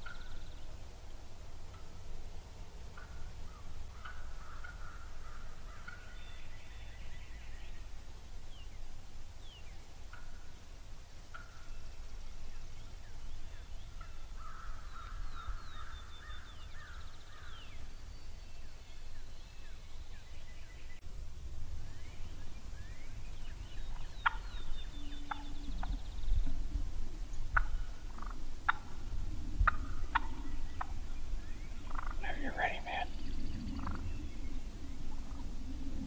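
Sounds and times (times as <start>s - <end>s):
turkeys calling: 0.0s - 0.6s, 2.9s - 6.5s, 10.0s - 10.6s, 11.3s - 11.7s, 23.6s - 36.0s.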